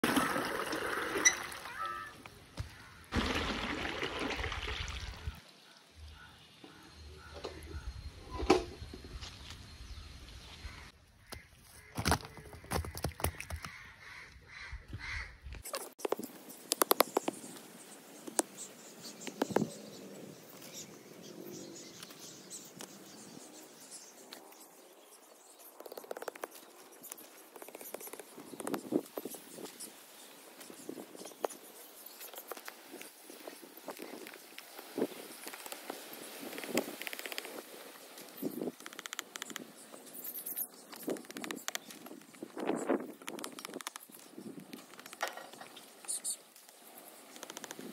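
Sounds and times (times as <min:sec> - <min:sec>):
water gushing and splashing: 0:00.0 - 0:02.1, 0:03.1 - 0:05.5.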